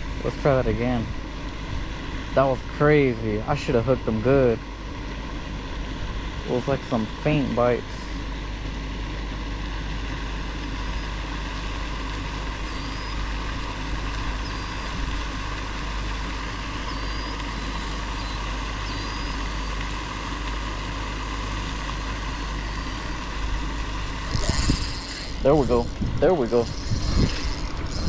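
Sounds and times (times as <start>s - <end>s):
rushing outdoor noise: 0.0s - 28.0s
small birds chirping: 12.6s - 13.3s, 14.4s - 14.9s, 16.8s - 19.8s.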